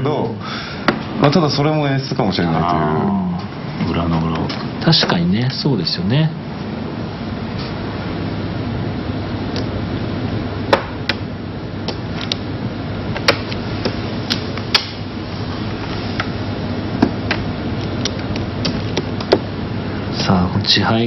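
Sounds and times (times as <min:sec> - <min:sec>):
low background hum: 0:00.0 - 0:21.0.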